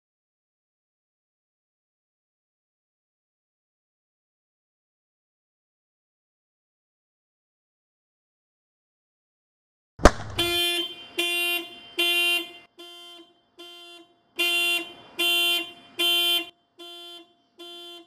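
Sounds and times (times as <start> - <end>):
sharp thump: 10.0 - 10.6
car horn honking: 10.3 - 18.0.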